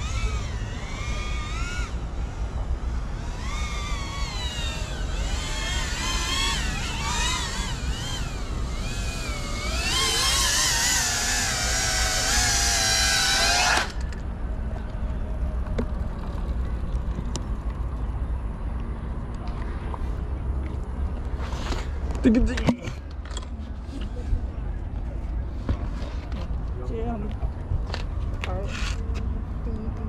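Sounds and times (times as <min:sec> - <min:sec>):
quadcopter motors whining: 0:00.0 - 0:14.3.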